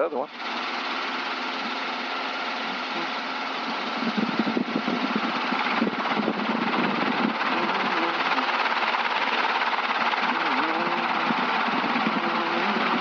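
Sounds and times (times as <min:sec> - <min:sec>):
helicopter engine and rotor: 0:00.3 - 0:13.0.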